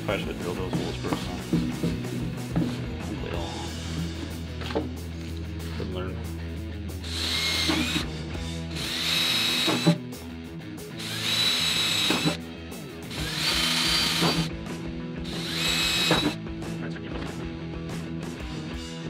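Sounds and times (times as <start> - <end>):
cordless drill whining: 7.0 - 8.1, 8.7 - 10.0, 11.0 - 12.4, 13.1 - 14.5, 15.2 - 16.4.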